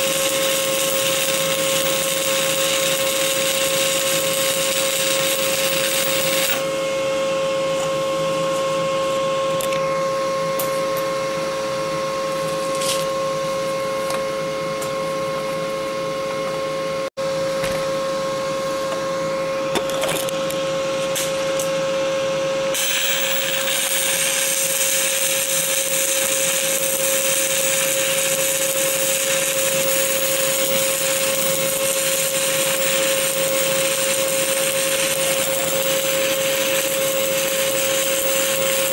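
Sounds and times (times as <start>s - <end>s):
welding arc crackling: 0.0s - 6.7s, 22.8s - 38.9s
steady hum: 6.5s - 22.7s.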